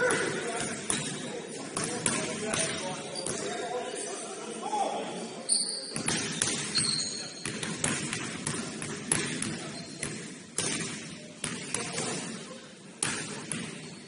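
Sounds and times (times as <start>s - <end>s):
murmur of the hall: 0.0s - 14.0s
sneaker squeaks: 5.5s - 7.6s, 9.6s - 10.1s
basketball bouncing on gym floor: 6.0s - 12.1s.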